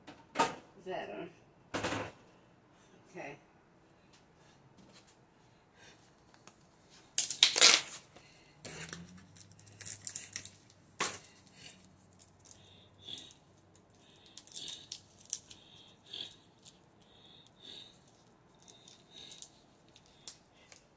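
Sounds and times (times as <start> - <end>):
foil wrapper crinkling: 7.2 - 8.1, 8.7 - 12.6, 13.7 - 16.8, 17.9 - 20.9.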